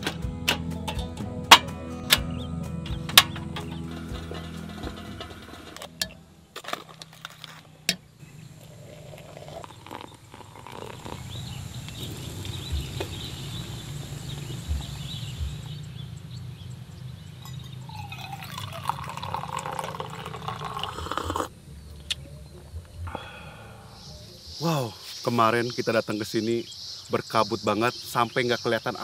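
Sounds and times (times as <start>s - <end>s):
water pouring into glass: 8.6s - 11.4s, 17.4s - 21.5s
coffee pouring into metal mug: 8.6s - 11.9s, 17.4s - 21.5s.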